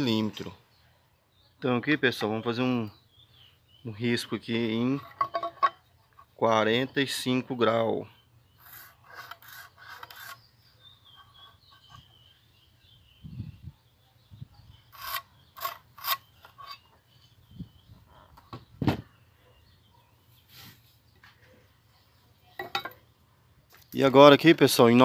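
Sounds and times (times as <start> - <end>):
pen scratching on wood: 8.6 - 10.4
square rubbing on wood: 8.6 - 10.5, 14.9 - 16.8.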